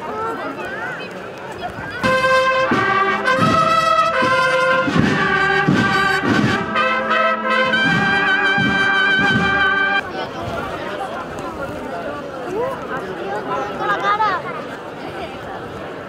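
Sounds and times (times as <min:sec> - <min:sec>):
brass band playing slow chords: 0:02.0 - 0:10.0.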